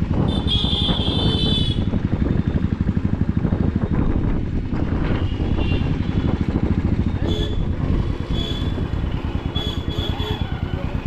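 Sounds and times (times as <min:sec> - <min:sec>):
motorcycle engine running: 0:00.0 - 0:11.0
high-pitched vehicle horn: 0:00.3 - 0:01.9, 0:07.2 - 0:10.6.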